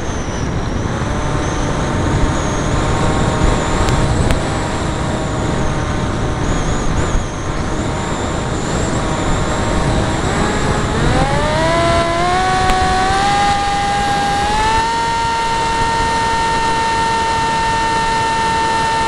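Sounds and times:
electric motor and propeller whine: 0:00.0 - 0:19.0
wind rushing on microphone: 0:00.0 - 0:19.0.

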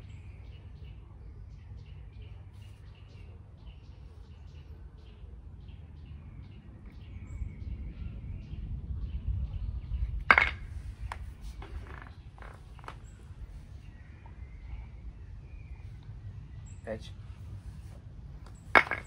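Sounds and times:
small birds chirping: 0:00.0 - 0:17.8
low rumble: 0:06.1 - 0:11.5.

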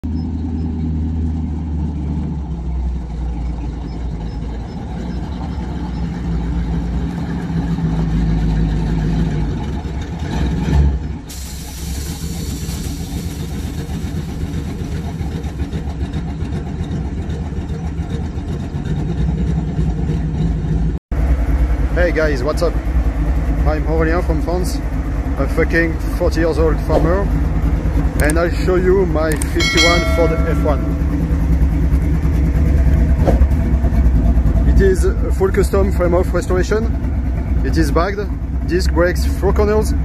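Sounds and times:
pickup truck engine running: 0:00.0 - 0:40.0
air suspension hiss: 0:11.3 - 0:14.4.

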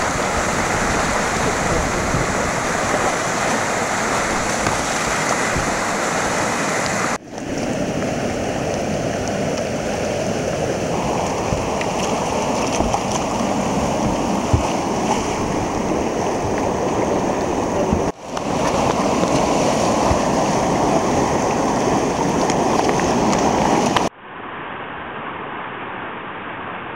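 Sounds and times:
whitewater rapids rushing: 0:00.0 - 0:24.1.

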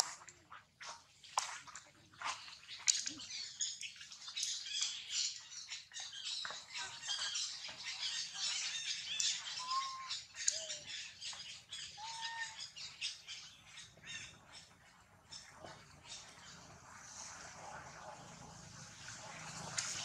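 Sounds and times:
high-pitched animal squeaking: 0:11.8 - 0:12.7.

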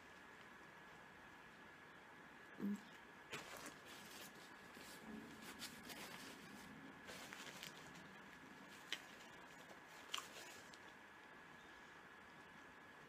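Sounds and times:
soft chewing: 0:02.6 - 0:11.4
food wrappers rustling: 0:03.3 - 0:10.9.

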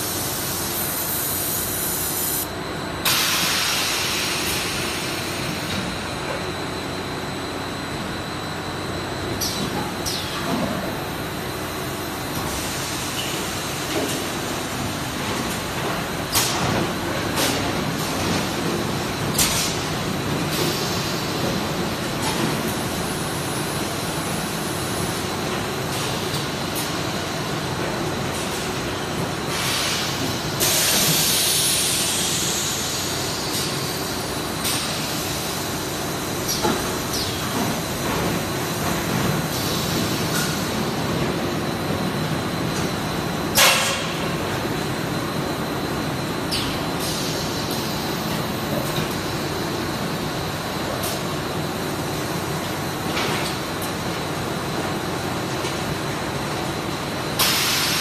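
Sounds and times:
air hissing: 0:00.1 - 0:05.0.

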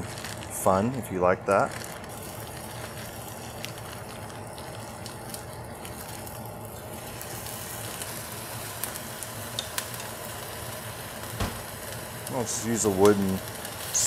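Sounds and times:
fat sizzling in a pot: 0:00.0 - 0:14.0
faint crackles: 0:11.2 - 0:14.0.

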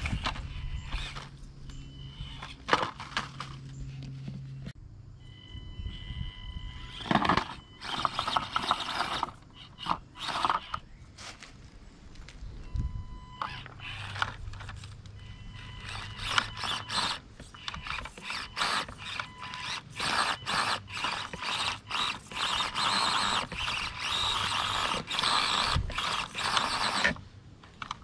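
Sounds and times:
small electric motor whirring: 0:00.0 - 0:03.7, 0:05.8 - 0:10.9, 0:13.4 - 0:27.2.

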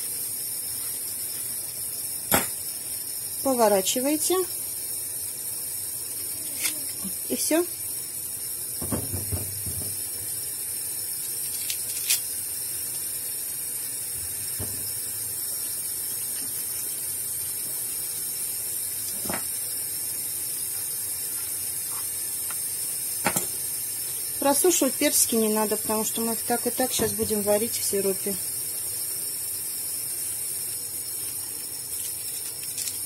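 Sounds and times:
tap running into steel sink: 0:08.8 - 0:10.0.

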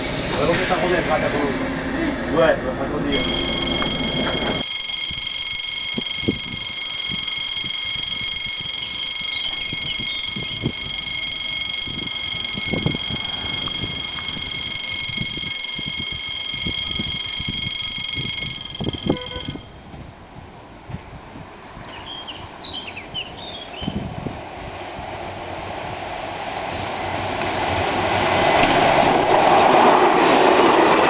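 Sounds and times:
level crossing electronic bell ringing: 0:03.1 - 0:19.8.

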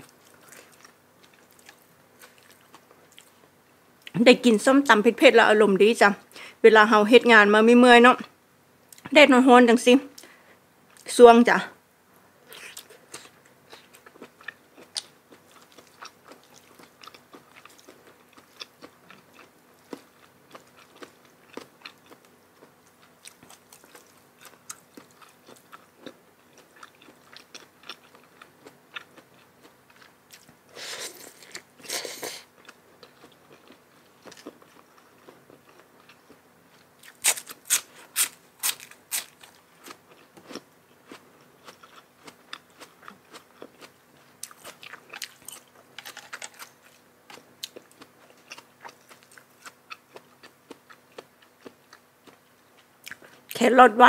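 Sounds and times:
person chewing food: 0:00.0 - 0:03.5, 0:12.5 - 0:53.6
sharp crunching bites: 0:37.0 - 0:40.6.

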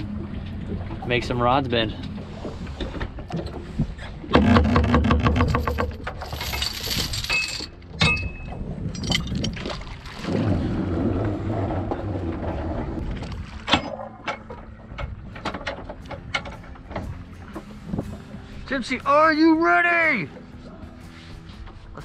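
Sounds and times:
metal clinks rattling: 0:05.6 - 0:09.6.

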